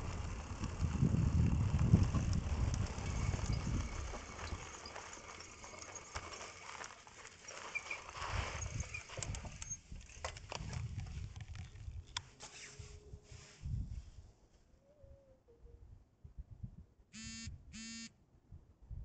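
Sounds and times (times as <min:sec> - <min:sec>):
low uneven rumble: 0:00.0 - 0:09.6
tyres rolling on gravel: 0:00.0 - 0:11.9
bike knocking and rattling: 0:00.0 - 0:12.6.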